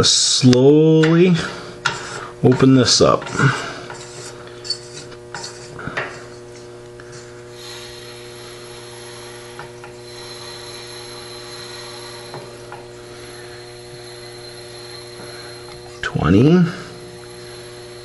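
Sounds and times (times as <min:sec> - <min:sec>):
low hum: 0:03.2 - 0:18.0
compressed air hissing through valve: 0:07.0 - 0:18.0.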